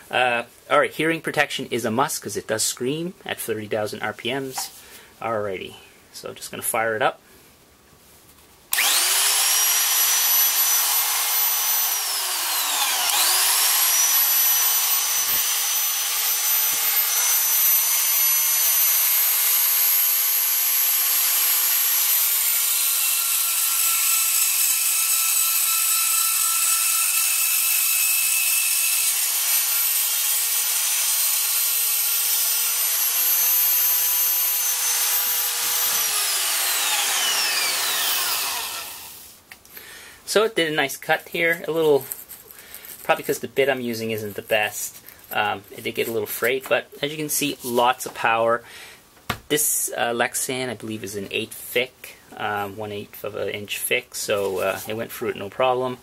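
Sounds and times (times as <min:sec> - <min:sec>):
bit cutting plastic sheet: 0:08.7 - 0:20.1, 0:32.8 - 0:39.3
power tool motor whining: 0:08.7 - 0:39.3.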